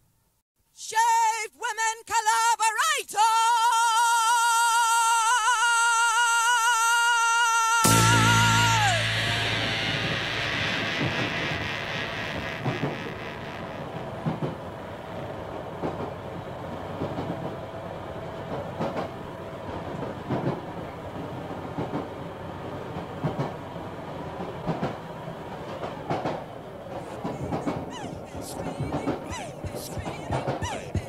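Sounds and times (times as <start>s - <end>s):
steady hum: 7.9s - 21.3s
rhythmic mechanical clatter: 26.1s - 31.0s.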